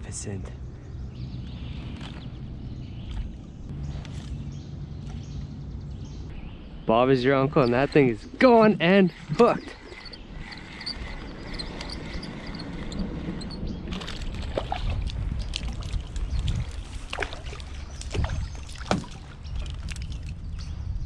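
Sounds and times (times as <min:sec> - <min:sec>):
water sloshing around canoe: 0:13.9 - 0:20.3
sharp knocks on hull: 0:18.1 - 0:19.2.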